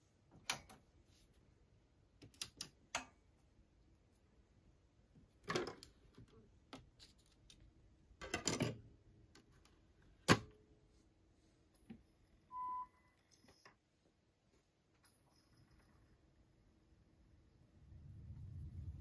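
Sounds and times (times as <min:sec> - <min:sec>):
short high beep: 0:12.5 - 0:13.2.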